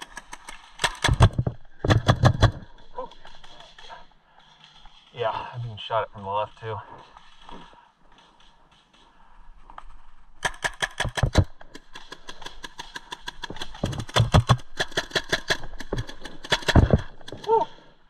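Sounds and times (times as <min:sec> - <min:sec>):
paintball markers firing: 0:00.0 - 0:03.5, 0:10.4 - 0:17.5.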